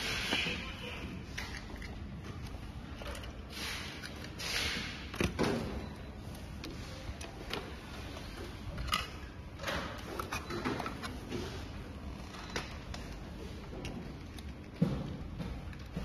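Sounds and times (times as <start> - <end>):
room noise: 0.0 - 16.0.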